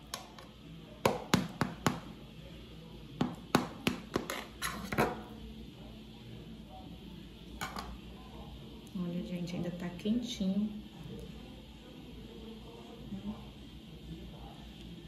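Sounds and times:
knife tapping metal baking pan: 1.0s - 2.0s.

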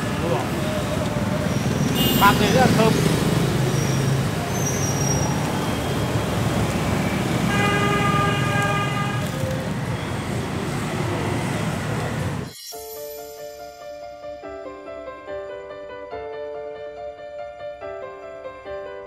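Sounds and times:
traffic of motorbikes and cars: 0.0s - 12.5s
car horn: 1.8s - 2.9s, 7.4s - 9.4s.

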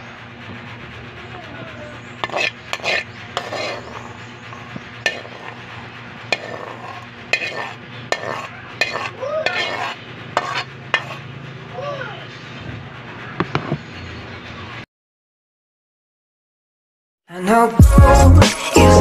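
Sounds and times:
low sizzle: 0.0s - 14.8s
metal spatula scraping a wok: 0.6s - 11.6s.

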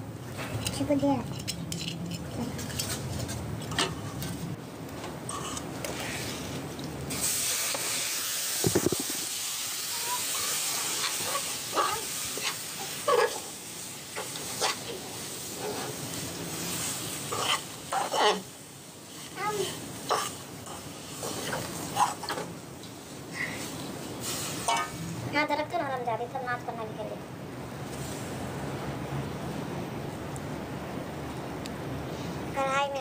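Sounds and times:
steel spoon scraping a pan: 0.4s - 4.4s, 5.3s - 6.5s, 8.7s - 13.6s, 14.2s - 19.3s, 20.0s - 22.5s, 24.2s - 25.0s
seeds sizzling in a pan: 7.1s - 25.2s.

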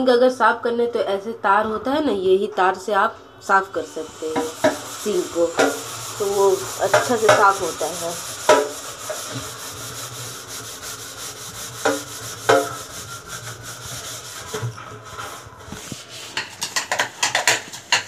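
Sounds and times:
wire scrubber scouring a steel sink: 3.8s - 17.7s
steel plate clattering: 11.8s - 12.9s.

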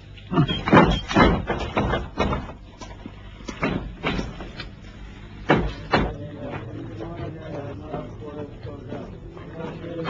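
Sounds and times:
door knocks and thuds: 0.6s - 2.6s.

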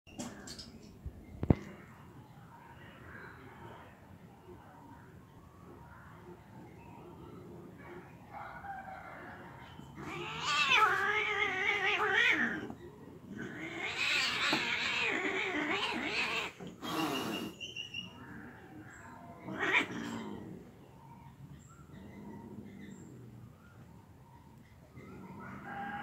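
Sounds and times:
cats yowling and fighting: 7.4s - 26.0s.

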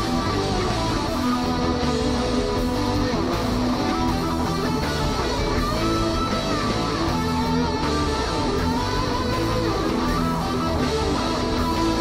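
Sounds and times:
instrumental guitar music: 0.0s - 12.0s.

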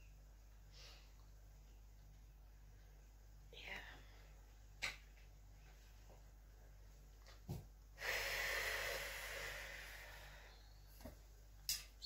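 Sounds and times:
long breathy exhale: 8.0s - 10.6s.

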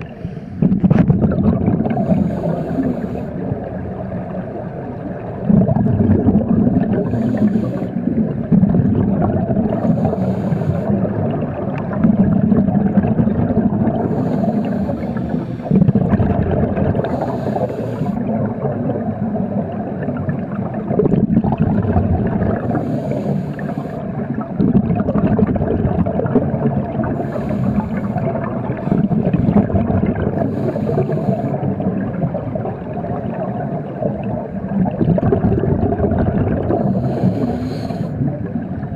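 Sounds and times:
regulator hiss on inhale: 0.0s - 0.6s, 1.9s - 3.5s, 6.9s - 8.1s, 9.7s - 11.1s, 13.9s - 15.9s, 17.0s - 18.2s, 22.6s - 24.2s, 27.1s - 29.7s, 30.3s - 31.7s, 36.7s - 38.3s
exhaled bubbles rushing: 0.0s - 10.2s, 10.9s - 37.6s.

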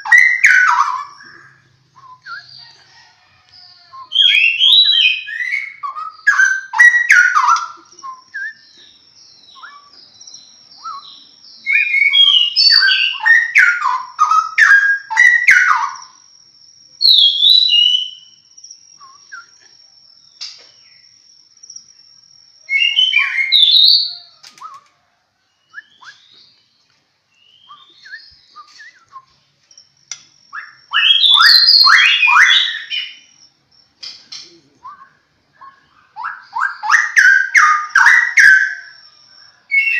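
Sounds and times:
bird singing whistled phrases: 0.0s - 2.8s, 3.9s - 16.2s, 17.0s - 18.4s, 19.0s - 19.7s, 22.6s - 24.9s, 25.6s - 26.6s, 27.4s - 29.4s, 30.5s - 33.4s, 34.4s - 39.0s.

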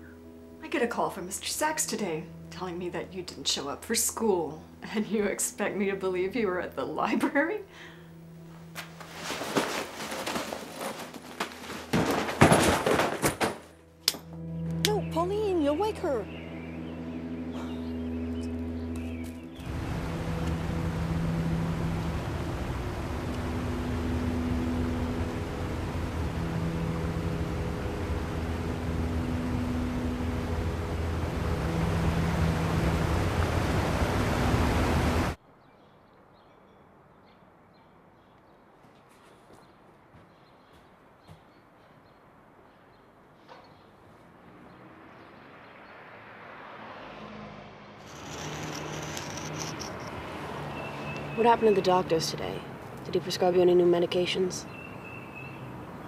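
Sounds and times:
books dropping onto floor: 8.8s - 13.7s
river rapids roaring: 19.6s - 35.4s.

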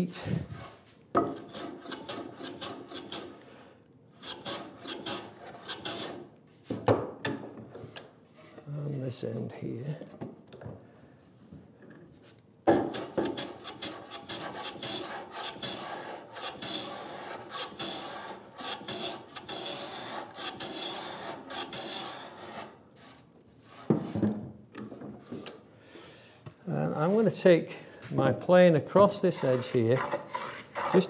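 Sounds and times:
hand plane rasping on wood: 0.5s - 3.4s, 4.2s - 6.2s, 12.9s - 22.8s, 29.1s - 31.0s.

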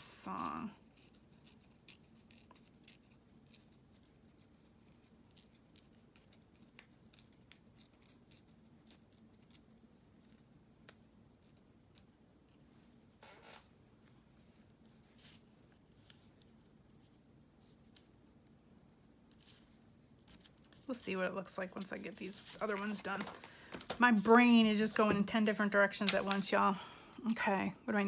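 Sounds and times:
paper clicks and crinkles: 19.3s - 21.0s, 21.6s - 26.6s
paper rustle: 21.6s - 26.6s.

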